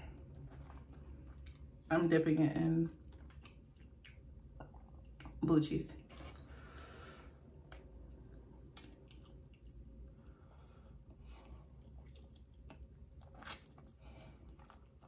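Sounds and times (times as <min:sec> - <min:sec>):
wet mouth smacks: 0:07.7 - 0:09.8.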